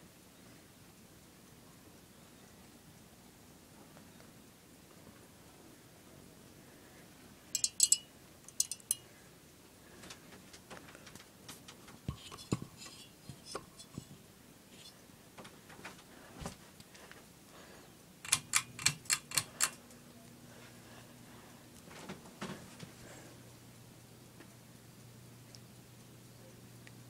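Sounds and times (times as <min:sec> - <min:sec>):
ceiling fan hum: 0:00.0 - 0:27.0
bead chain rattle: 0:07.6 - 0:09.0
pull-chain switch clicking: 0:18.3 - 0:19.8.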